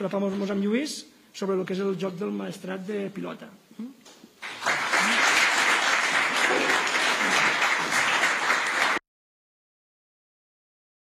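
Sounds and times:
audience applauding: 4.4 - 9.0.

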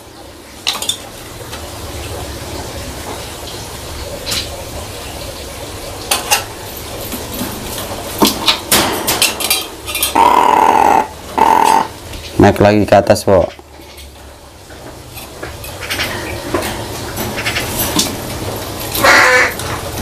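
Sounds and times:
crow cawing: 10.1 - 12.0, 19.0 - 19.6.

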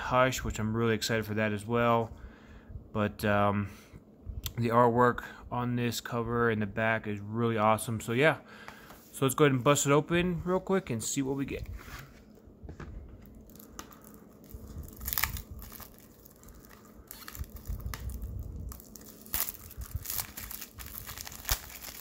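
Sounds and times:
plastic wrap crinkling and tearing: 13.2 - 22.0.

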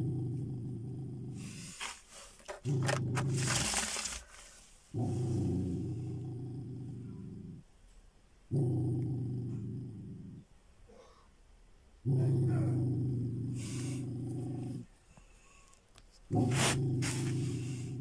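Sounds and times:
dog growling: 0.0 - 1.8, 2.4 - 7.7, 8.5 - 10.5, 12.0 - 15.0, 16.3 - 18.0
crackling rustle: 1.6 - 4.9, 15.6 - 18.0.

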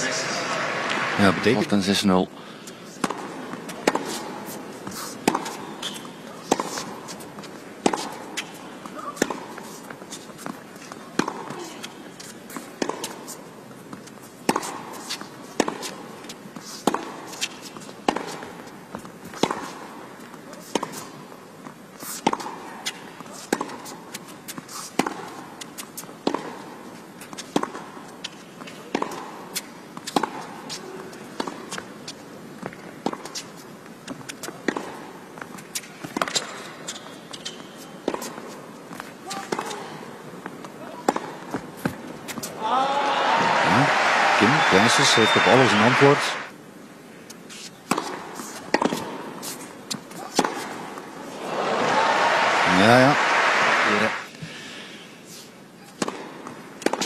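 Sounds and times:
tennis ball struck by rackets: 3.0 - 4.2, 5.2 - 6.8, 7.8 - 9.5, 11.2 - 11.6, 12.8 - 13.1, 18.1 - 18.4, 28.9 - 29.3, 47.9 - 49.2, 49.9 - 50.8, 56.0 - 57.0.

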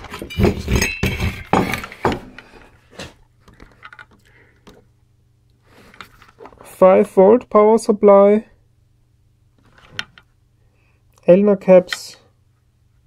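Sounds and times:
hard parts clinking and knocking: 0.0 - 2.5.

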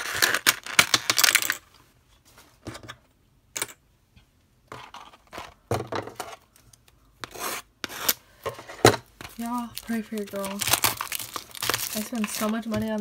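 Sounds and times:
plastic wrap rustling: 9.3 - 13.0.

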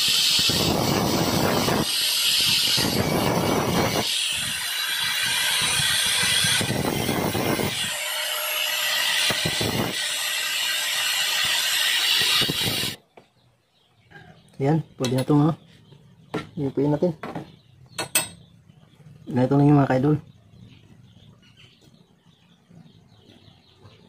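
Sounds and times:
angle grinder grinding metal: 0.0 - 13.0.

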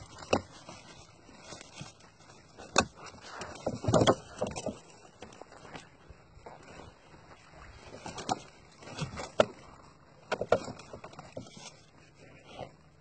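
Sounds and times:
fish slapping in water: 7.5 - 11.6.

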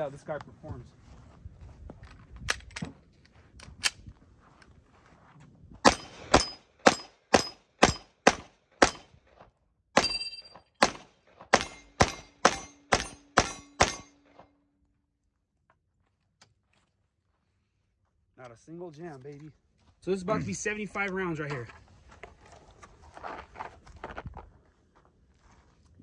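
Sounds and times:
pistol rapid fire: 5.8 - 9.1, 10.8 - 14.1.

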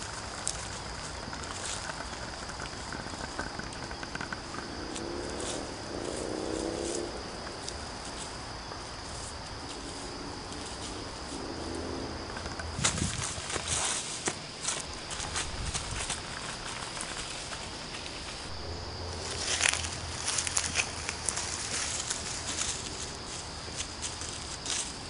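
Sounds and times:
insects chirring: 0.0 - 25.0
faint pitched hum: 7.2 - 25.0
footsteps through tall grass: 12.7 - 25.0.

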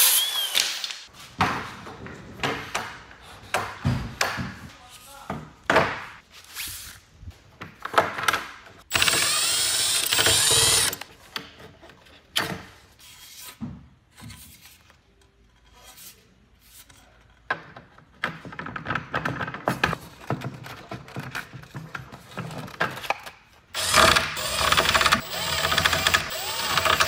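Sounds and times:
loud mechanical rasp: 8.9 - 11.0, 23.8 - 27.0.

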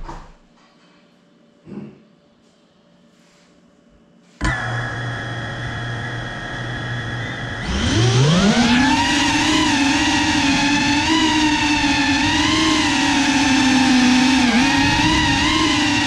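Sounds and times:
drone propellers whirring: 7.3 - 16.0.

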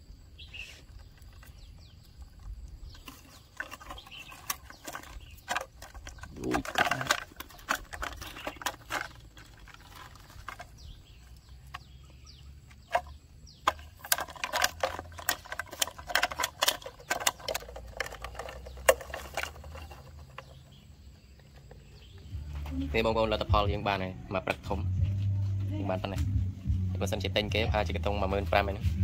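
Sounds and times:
plastic bottle clicks and crackles: 2.4 - 12.0, 12.8 - 20.7.

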